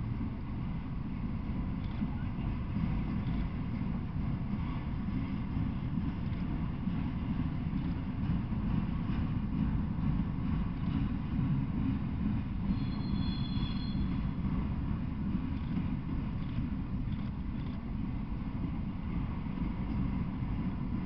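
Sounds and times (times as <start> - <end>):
train wheels rumbling on rail: 0.0 - 21.0
faint wheel clicks: 3.0 - 3.9, 15.5 - 17.9
thin high squeal: 12.7 - 14.2.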